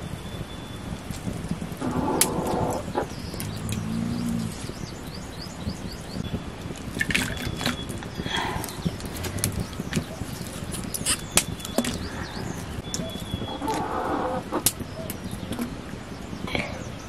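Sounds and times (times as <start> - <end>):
low hum: 0.0 - 15.8
small bird chirps: 1.8 - 6.4
asparagus stalks rustling: 6.8 - 12.8.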